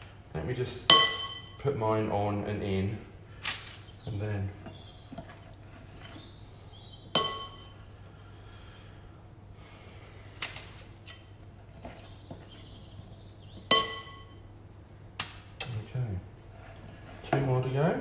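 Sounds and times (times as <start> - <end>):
spoon clinking glass bowl: 13.7 - 14.4.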